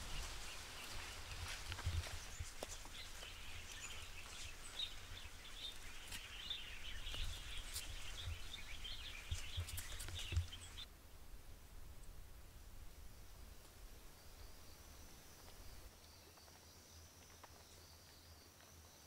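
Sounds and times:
small birds chirping: 0.0 - 10.9
footstep thuds on trail: 5.6 - 10.8.

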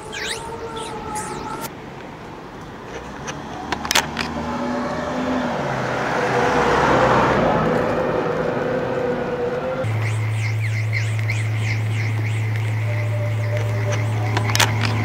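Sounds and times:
car passing: 0.0 - 15.0
steady traffic hum: 0.0 - 15.0
sharp clicks: 13.5 - 15.0.

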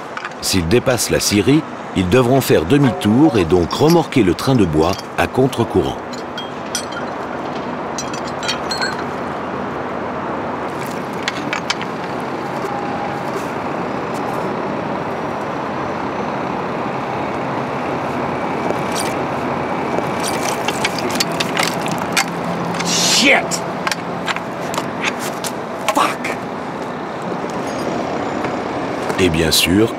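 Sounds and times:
tugboat engine: 0.0 - 29.9
metal chain clinks and knocks: 4.8 - 5.3, 6.0 - 9.4, 20.2 - 22.9.

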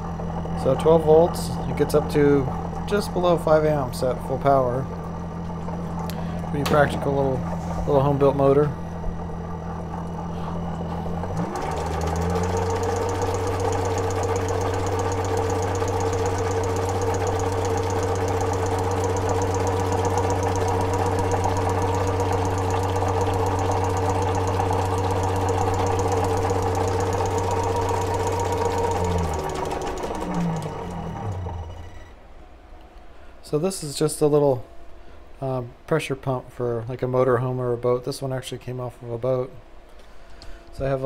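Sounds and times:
motor humming with fast ticking: 0.0 - 32.2
water pump chatter: 11.2 - 31.6.

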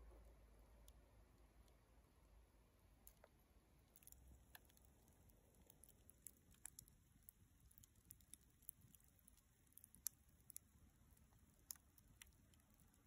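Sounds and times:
wood fire crackling: 2.8 - 13.0.

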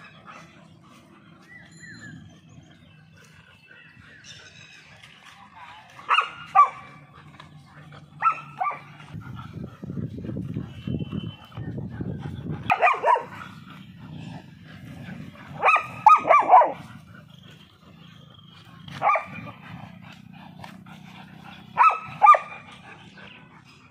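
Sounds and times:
dogs growling: 0.0 - 23.9
dog barks: 6.0 - 7.0, 8.2 - 8.9, 12.7 - 13.6, 15.5 - 16.9, 18.8 - 19.7, 21.6 - 23.0.

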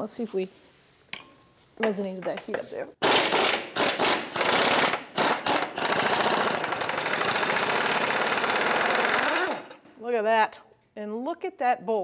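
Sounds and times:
pneumatic impact wrench hammering: 3.0 - 9.8.

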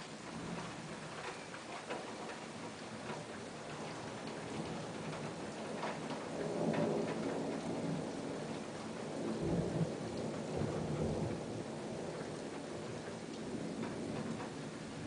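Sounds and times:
raindrops tapping: 0.0 - 15.0
steady rain: 0.0 - 15.0
thunder rumbling: 3.6 - 15.0.

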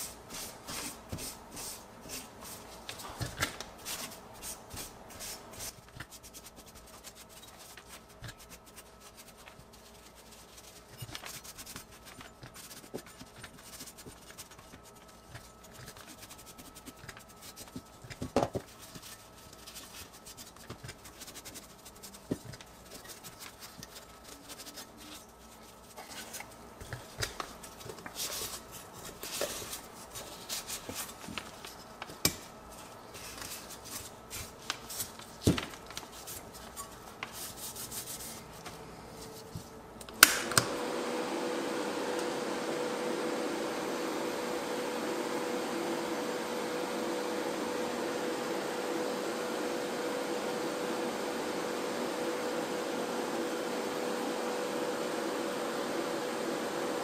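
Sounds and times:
paper towel rubbing metal: 3.8 - 18.0, 18.7 - 31.8.

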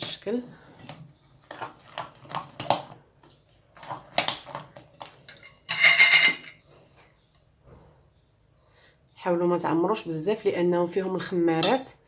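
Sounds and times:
metal spoon stirring in glass bowl: 3.8 - 6.6.

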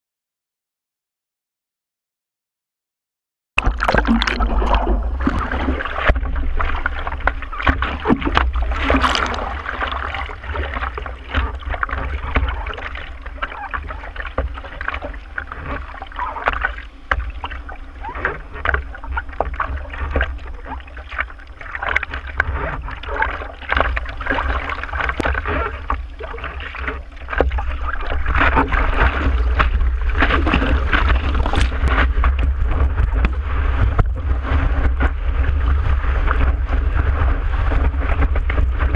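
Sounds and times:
steady low rumble: 3.6 - 38.9
water splashing around surfboard: 3.6 - 38.9
rush of whitewater: 3.7 - 34.7.

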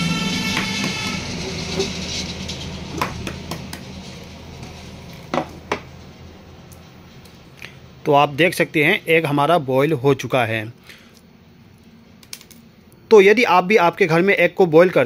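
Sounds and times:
steady background hum: 0.0 - 15.0
eggshell cracking and peeling: 12.2 - 12.7.

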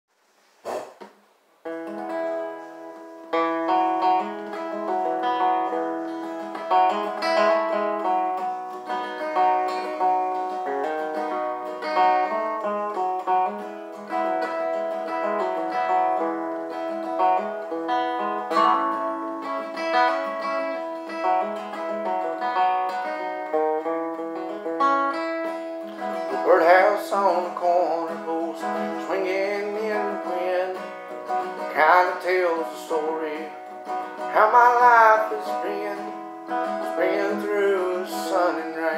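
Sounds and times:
acoustic guitar playing: 0.2 - 38.9
man singing: 26.0 - 38.9.

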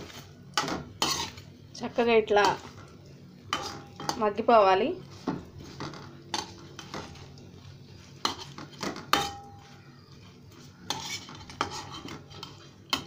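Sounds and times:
vegetables frying in oil: 0.0 - 13.0
spoon clinking on frying pan: 9.0 - 9.6.

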